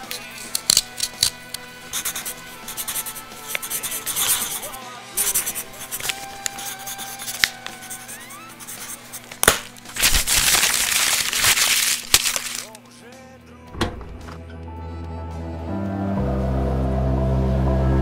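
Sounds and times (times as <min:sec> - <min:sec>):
paper being crumpled: 0:05.4 - 0:08.0, 0:08.7 - 0:12.8
ambient music: 0:13.7 - 0:18.0
low drone: 0:14.0 - 0:18.0.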